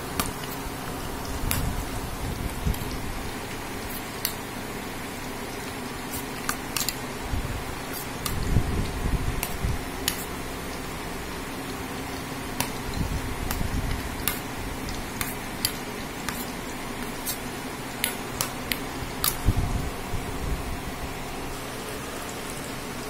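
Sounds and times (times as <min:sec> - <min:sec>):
steady fan-like hiss: 0:00.0 - 0:23.0
spoon stirring thick batter: 0:05.3 - 0:19.5.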